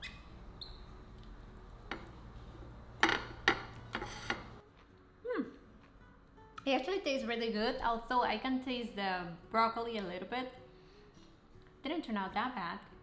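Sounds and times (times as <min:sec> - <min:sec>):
metal spatula scraping glass dish: 0:03.9 - 0:04.6.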